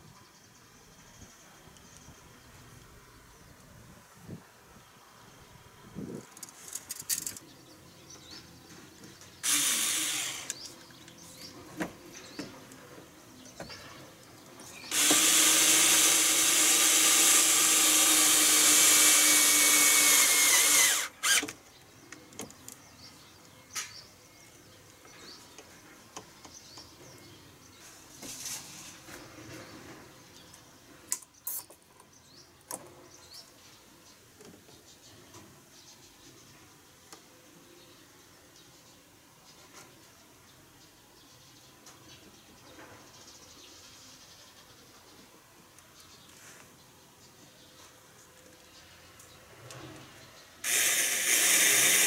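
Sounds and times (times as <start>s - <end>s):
electric drill running: 9.4s - 10.7s, 14.9s - 21.5s, 50.6s - 52.0s.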